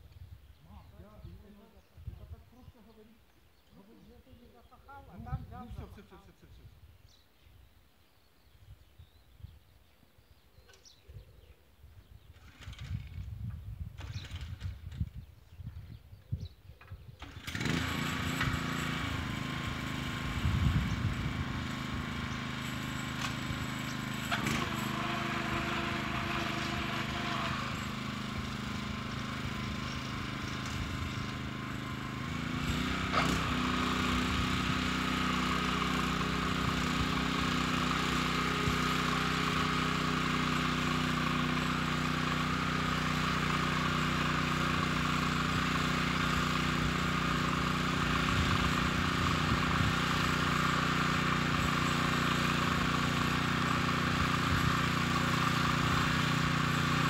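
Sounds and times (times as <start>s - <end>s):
tractor engine running: 17.2s - 57.0s.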